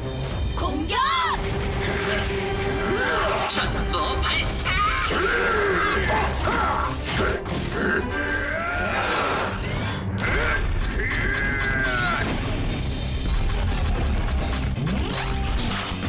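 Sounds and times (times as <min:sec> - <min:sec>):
action soundtrack music: 0:00.0 - 0:16.0
robot clanks and whirs: 0:06.1 - 0:16.0.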